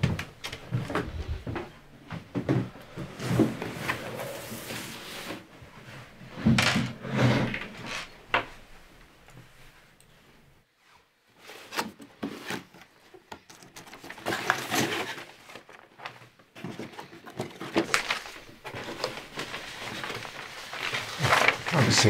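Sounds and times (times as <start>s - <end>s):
paper rustling: 11.4s - 22.0s
cardboard box opening: 13.8s - 15.7s, 16.6s - 21.9s.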